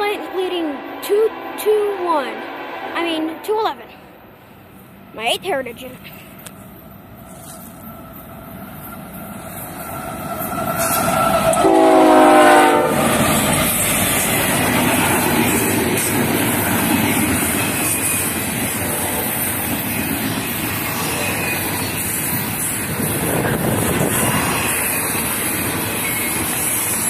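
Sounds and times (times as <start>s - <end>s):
diesel locomotives: 0.0s - 27.0s
clickety-clack of rolling railcars: 5.7s - 27.0s
train horn blast: 11.5s - 13.1s.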